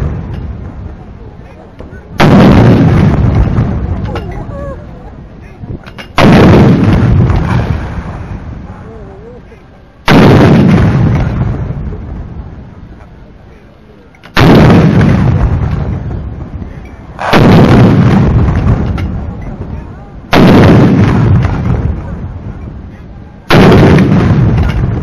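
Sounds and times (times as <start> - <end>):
artillery gun booms: 1.8 - 4.5, 5.8 - 8.5, 10.0 - 12.5, 14.2 - 25.0.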